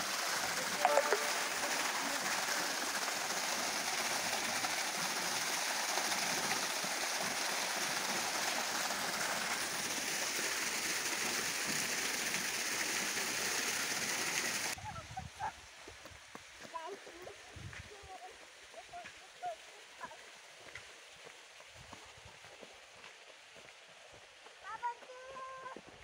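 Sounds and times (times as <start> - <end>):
water splashing into pool: 0.0 - 14.8.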